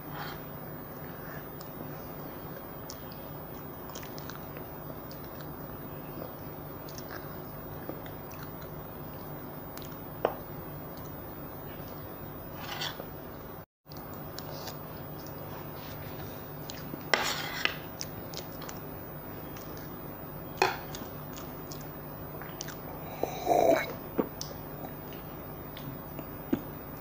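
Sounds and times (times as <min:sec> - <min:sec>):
steady low hum: 0:00.0 - 0:27.0
quiet chewing: 0:02.5 - 0:10.1, 0:13.9 - 0:17.1, 0:20.6 - 0:23.2.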